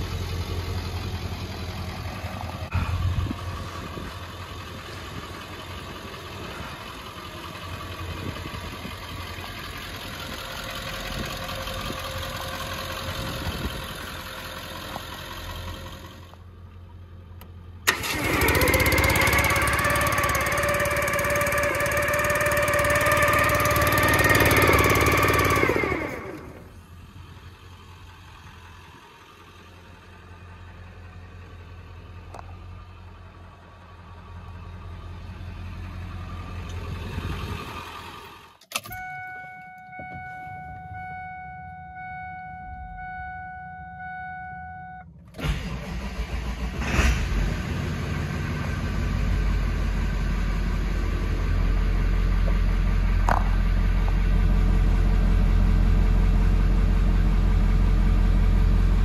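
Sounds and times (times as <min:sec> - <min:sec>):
truck engine idling: 0:00.0 - 0:46.8, 0:47.7 - 0:59.0
steady high tone: 0:38.8 - 0:45.1.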